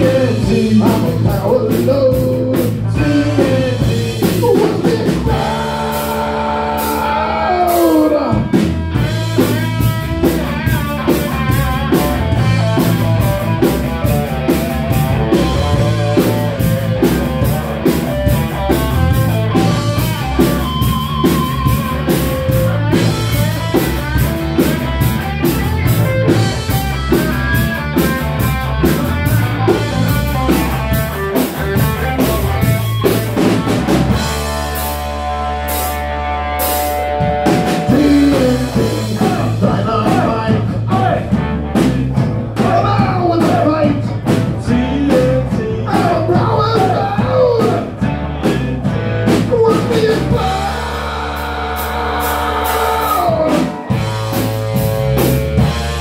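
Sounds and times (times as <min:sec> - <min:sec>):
person singing: 0:00.0 - 0:08.6, 0:37.6 - 0:41.4, 0:42.6 - 0:48.8, 0:49.4 - 0:54.0
drum beat: 0:00.0 - 0:35.0, 0:36.6 - 0:56.0
rock band playing: 0:00.0 - 0:56.0.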